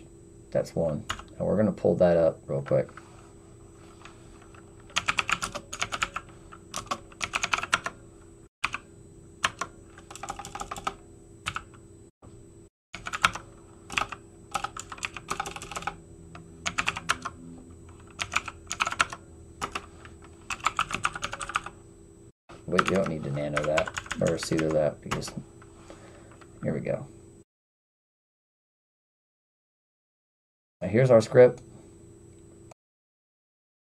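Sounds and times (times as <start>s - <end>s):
faint steady hum: 0.0s - 27.4s, 30.8s - 32.8s
typing on computer keyboard: 4.9s - 8.0s, 9.4s - 11.7s, 13.0s - 16.0s, 16.7s - 17.3s, 18.0s - 19.9s, 20.5s - 21.7s, 22.8s - 24.8s.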